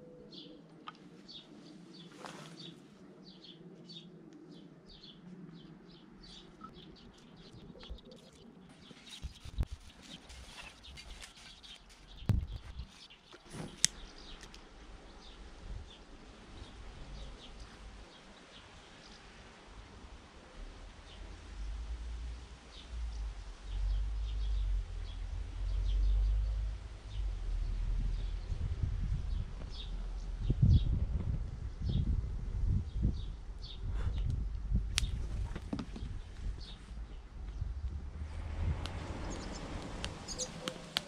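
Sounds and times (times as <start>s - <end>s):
small birds chirping: 0.3s - 19.3s, 32.9s - 37.9s, 38.9s - 41.0s.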